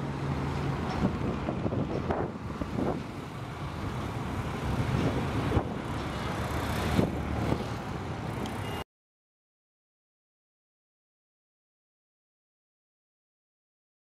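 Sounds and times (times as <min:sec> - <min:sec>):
distant traffic rumble: 0:00.0 - 0:08.8.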